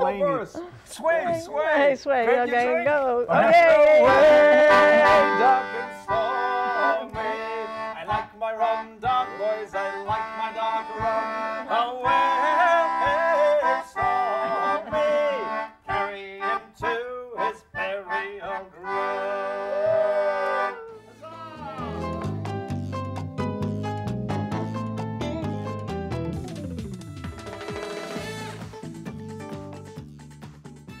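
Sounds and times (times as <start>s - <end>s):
man singing: 2.5s - 22.6s
concertina playing chords: 3.6s - 16.6s, 17.4s - 29.8s.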